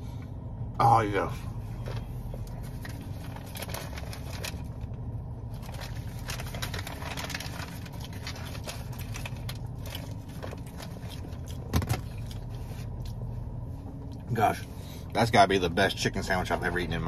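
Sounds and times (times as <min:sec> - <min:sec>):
low steady hum: 0:00.0 - 0:17.0
paper wrapper crinkling: 0:02.4 - 0:12.7.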